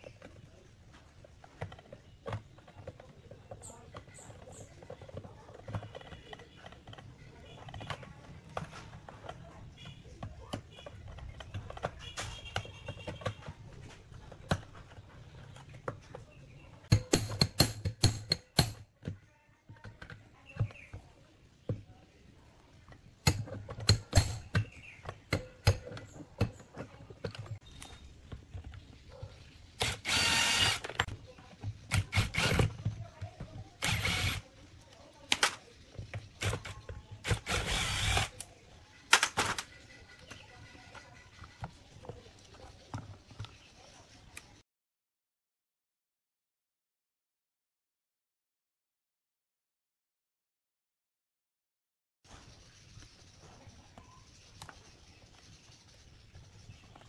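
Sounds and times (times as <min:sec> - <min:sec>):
metal tools knocking on plastic: 0:00.1 - 0:21.9
screwdriver turning screws: 0:29.8 - 0:31.2, 0:31.8 - 0:34.5, 0:36.3 - 0:38.5.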